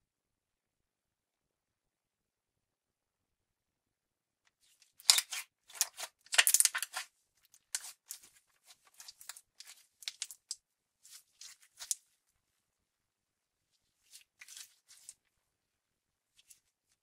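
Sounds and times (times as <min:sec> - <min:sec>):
slime squelching and clicking: 0:04.9 - 0:10.6.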